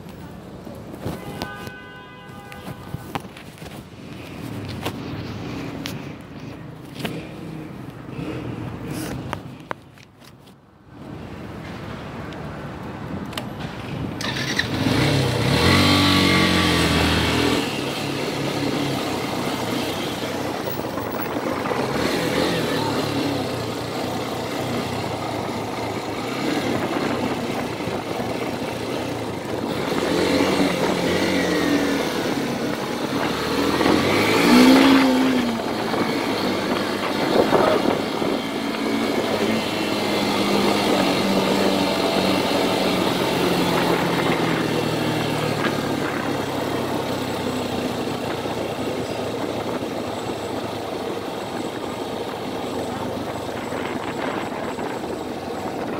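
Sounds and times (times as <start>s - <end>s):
road and wind noise: 0.0s - 55.9s
motorcycle engine accelerating: 14.2s - 55.9s.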